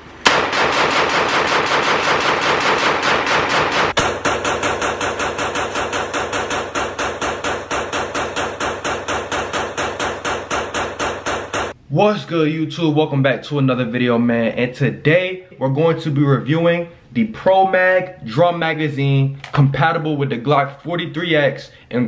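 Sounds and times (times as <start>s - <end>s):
pistol firing rapidly: 0.3s - 11.8s.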